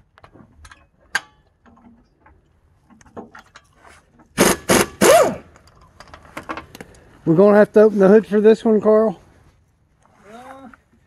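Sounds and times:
impact wrench hammering: 4.4s - 5.5s.

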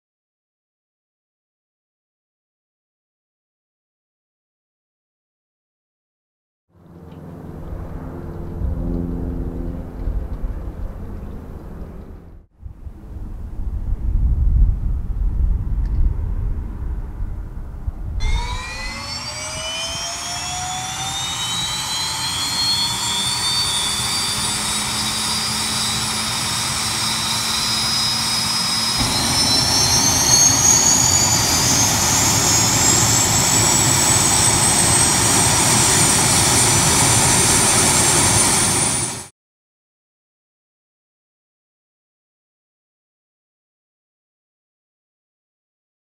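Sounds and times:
low outdoor rumble: 6.8s - 18.2s
turbine whine rising in pitch: 6.8s - 39.3s
rushing engine noise: 17.4s - 39.3s.

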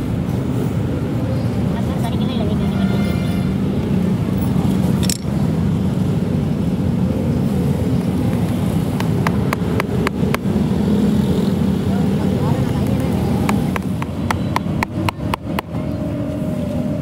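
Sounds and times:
steel nails clinking: 5.0s - 5.4s.

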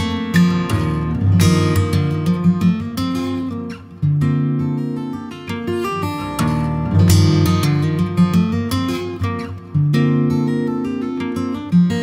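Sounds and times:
fingerstyle acoustic guitar: 0.0s - 12.0s.

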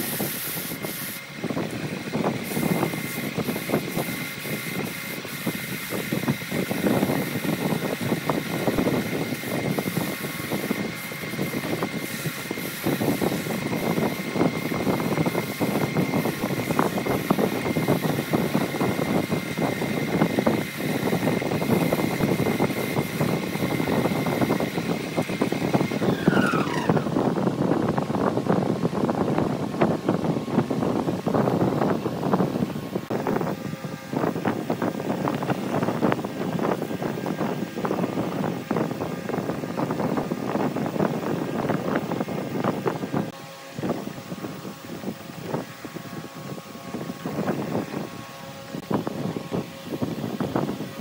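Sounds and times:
wood lathe motor whine: 6.2s - 28.0s
sandpaper friction on wood: 26.0s - 27.2s.

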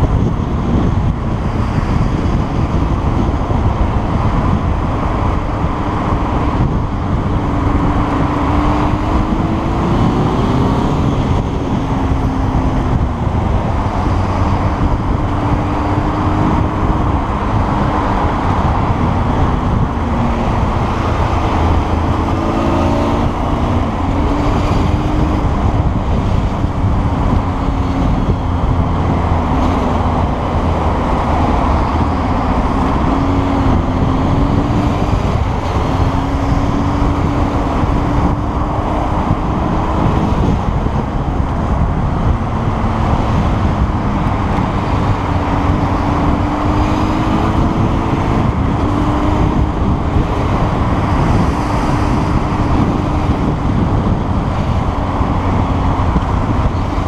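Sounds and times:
wind noise on microphone: 0.0s - 57.0s.

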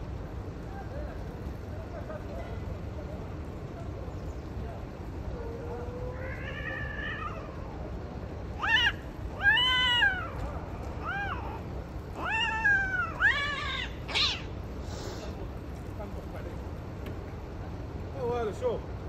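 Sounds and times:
cat mating calls: 5.3s - 7.9s, 8.5s - 15.3s.

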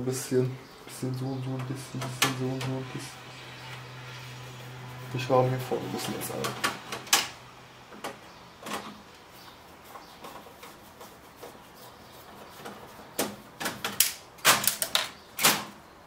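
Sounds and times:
sharp clicks and knocks: 6.4s - 9.1s.

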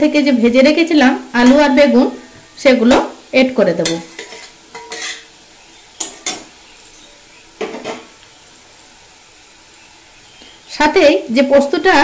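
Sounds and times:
metal utensils clanking on a pan: 1.4s - 1.8s, 3.8s - 5.4s, 6.0s - 7.0s, 7.6s - 8.2s.

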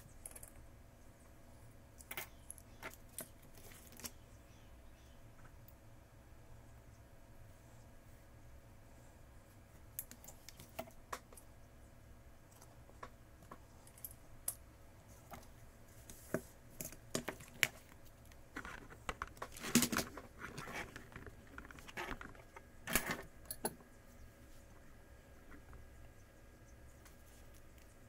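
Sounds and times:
small tools clicking and tapping: 2.0s - 4.2s
parts clattering and scraping: 12.5s - 23.8s.

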